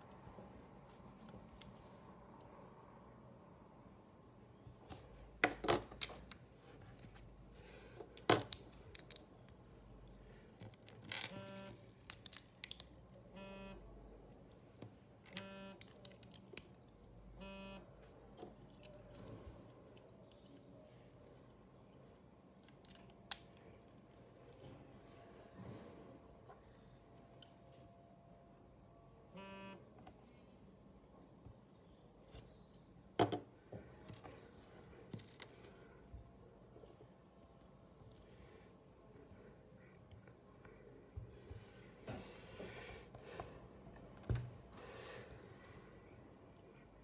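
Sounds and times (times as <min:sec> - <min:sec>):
plastic bricks clicking and rattling: 0:12.0 - 0:13.0.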